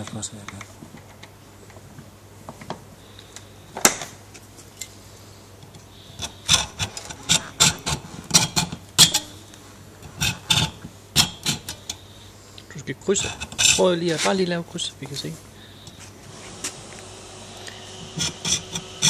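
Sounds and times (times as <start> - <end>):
hacksaw cutting metal: 6.2 - 9.3, 10.2 - 12.0, 13.2 - 13.9, 18.0 - 19.0.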